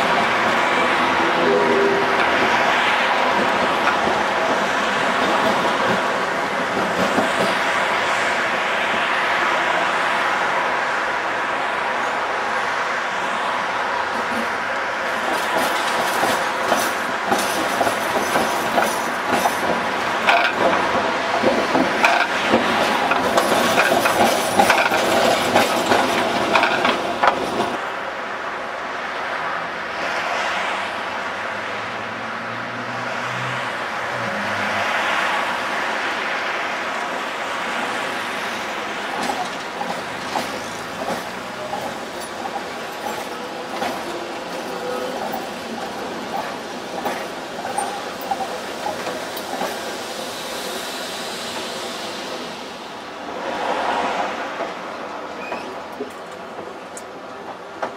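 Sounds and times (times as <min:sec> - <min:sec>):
tram wheels clattering over joints: 0:00.0 - 0:09.1, 0:14.0 - 0:27.8, 0:37.0 - 0:50.2, 0:54.0 - 0:57.9
tram passing close: 0:00.0 - 0:57.9.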